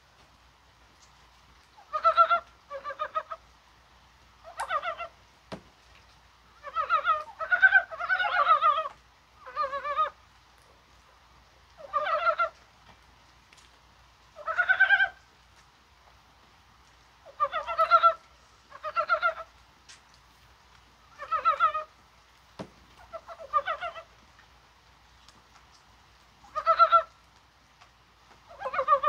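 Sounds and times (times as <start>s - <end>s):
frogs croaking: 6.5s - 10.2s.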